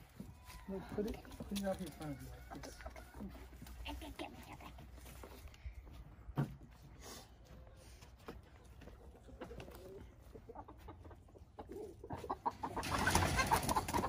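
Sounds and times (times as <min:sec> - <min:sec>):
chickens clucking: 0:00.0 - 0:05.5, 0:07.4 - 0:14.0
chickens squawking loudly: 0:09.4 - 0:14.0.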